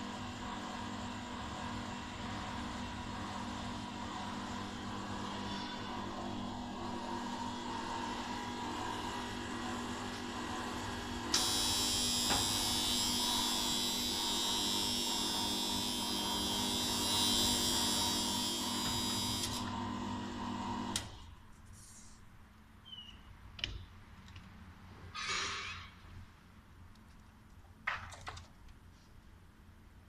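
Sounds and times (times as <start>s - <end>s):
electric motor hum: 2.5s - 21.1s.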